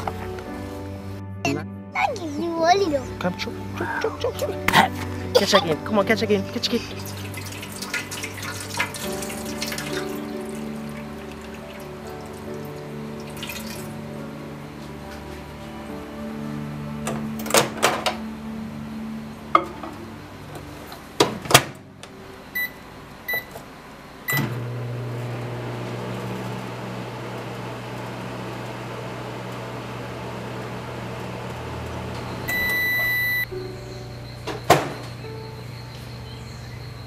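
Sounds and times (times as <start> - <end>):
microwave oven humming: 7.1 - 37.0
long microwave beep: 22.5 - 23.6, 24.3 - 24.6, 32.0 - 35.8
keypad beeps: 22.6 - 23.5, 32.4 - 33.5.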